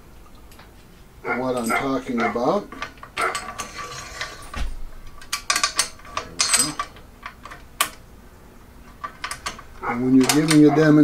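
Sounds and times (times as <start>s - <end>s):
metal washers clicking and scraping: 1.5s - 8.1s, 8.8s - 11.0s.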